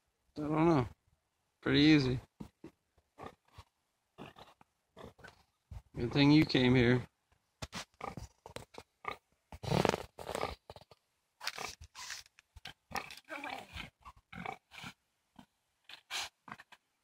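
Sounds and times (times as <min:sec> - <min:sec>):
pig grunting: 0:04.2 - 0:05.3.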